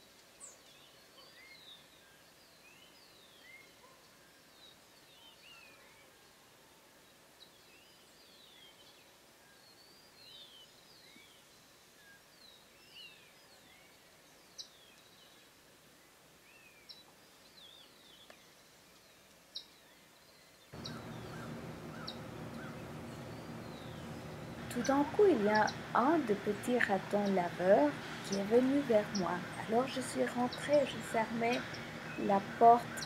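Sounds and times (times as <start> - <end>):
steady low hum: 20.8 - 33.0.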